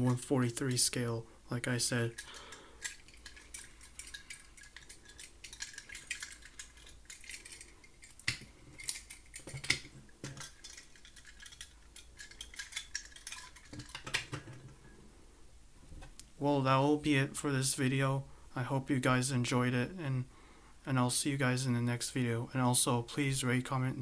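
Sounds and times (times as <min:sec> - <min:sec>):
metal toy cars clicking on table: 0:02.2 - 0:14.6.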